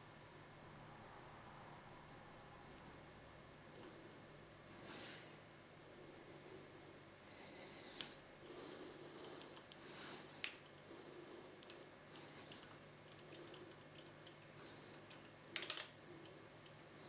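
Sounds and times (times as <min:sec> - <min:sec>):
lock pick metallic clicks: 0:12.5 - 0:16.0.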